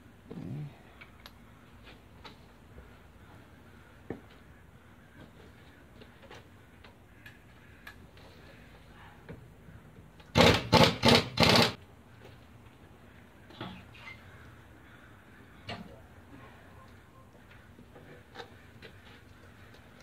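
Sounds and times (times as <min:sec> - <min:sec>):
pneumatic impact wrench bursts: 0:10.3 - 0:11.8.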